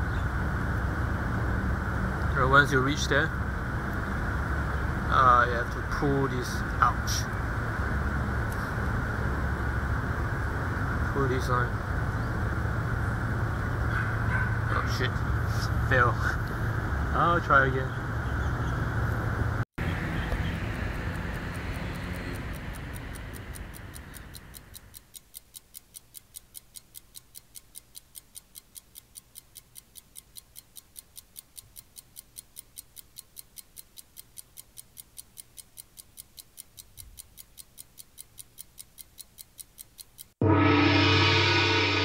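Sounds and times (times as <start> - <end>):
outdoor background noise: 0.0 - 41.5
clock ticking quickly: 19.8 - 40.4.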